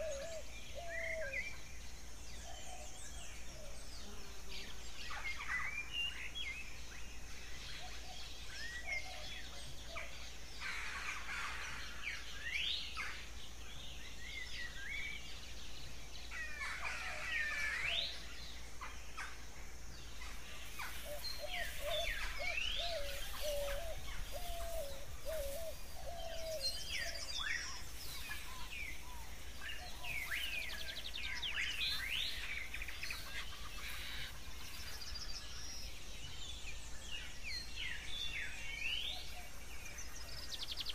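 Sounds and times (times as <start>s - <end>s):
birds chirping and whistling: 0.0s - 3.8s, 20.0s - 40.9s.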